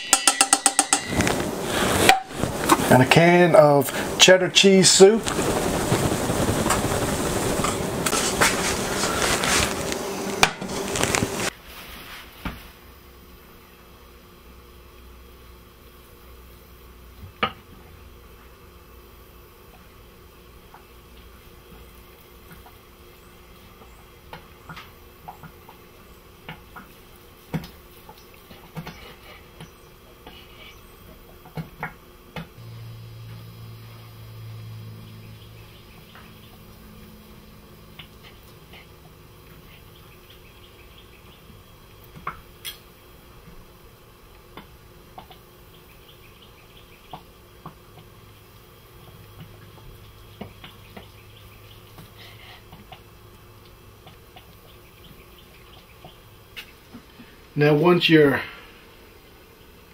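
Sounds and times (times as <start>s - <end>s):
low hum: 32.6s - 42.1s.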